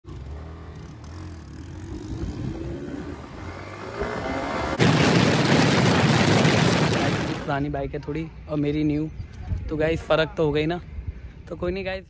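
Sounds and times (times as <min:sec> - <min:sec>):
motorcycle engine accelerating: 0:00.0 - 0:05.9
loud rush of noise: 0:04.7 - 0:07.6.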